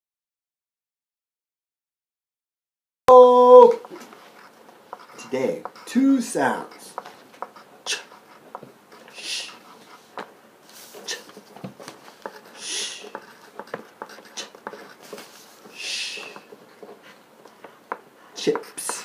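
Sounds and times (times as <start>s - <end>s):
man sounding out phonics: 3.1s - 4.1s, 5.1s - 7.0s, 7.8s - 8.2s, 9.1s - 9.6s, 12.6s - 13.2s.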